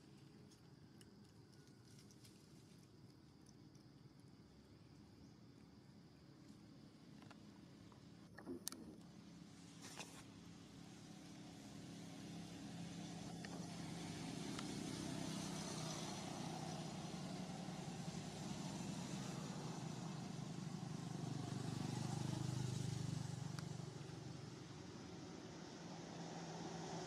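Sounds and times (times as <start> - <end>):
vehicle engine running: 7.2 - 27.0.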